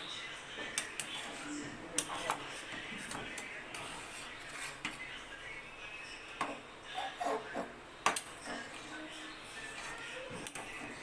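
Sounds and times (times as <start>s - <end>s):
metal spatula scraping a pan: 1.0s - 5.1s, 8.4s - 11.0s.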